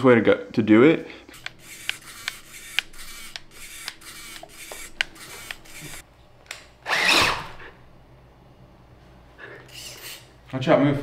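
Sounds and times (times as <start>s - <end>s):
rc car motor and servo bursts: 1.3s - 6.0s.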